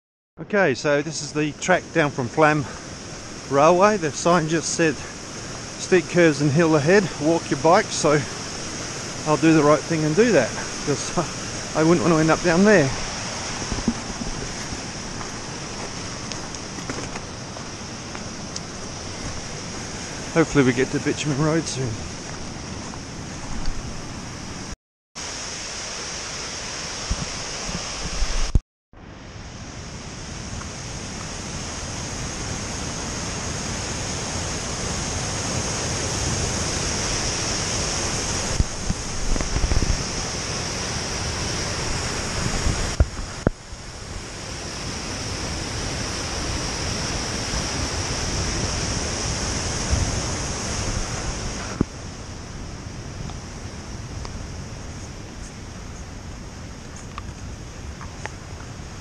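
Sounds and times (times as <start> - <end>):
waterfall rushing: 0.8 - 28.6, 29.2 - 59.0
wind on microphone: 6.9 - 24.7, 26.9 - 28.6, 30.0 - 59.0.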